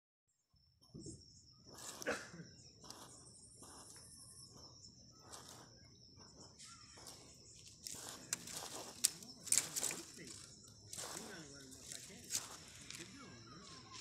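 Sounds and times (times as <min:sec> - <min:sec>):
crickets chirring: 0:00.3 - 0:14.0.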